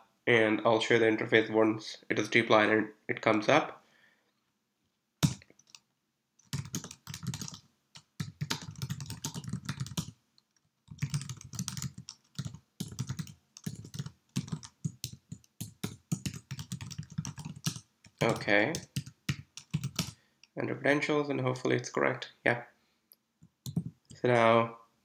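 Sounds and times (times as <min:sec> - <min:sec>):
keyboard typing: 0:05.2 - 0:05.8, 0:06.4 - 0:20.2, 0:23.4 - 0:24.2.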